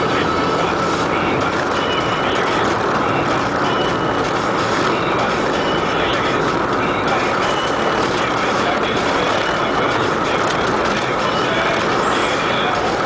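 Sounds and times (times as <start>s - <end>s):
car engine and tyre noise: 0.0s - 13.0s
short high-pitched tones: 1.7s - 2.7s, 3.3s - 4.3s, 5.0s - 8.3s.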